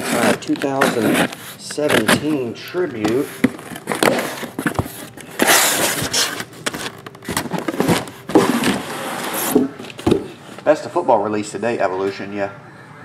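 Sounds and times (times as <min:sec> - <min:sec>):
cardboard cases scraping on table: 0:00.0 - 0:10.7
cardboard cases knocking down: 0:01.8 - 0:10.4.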